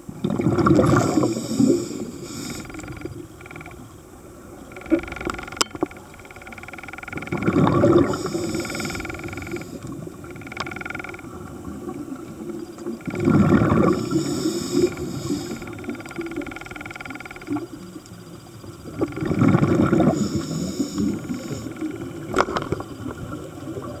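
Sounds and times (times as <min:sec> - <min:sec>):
bubbling exhalations: 0:00.2 - 0:02.6, 0:07.4 - 0:09.2, 0:13.1 - 0:15.7
scuba regulator breathing: 0:00.9 - 0:03.1, 0:06.9 - 0:10.0, 0:13.1 - 0:16.9, 0:19.4 - 0:22.0
sharp clicks: 0:04.7 - 0:07.7, 0:08.3 - 0:11.3.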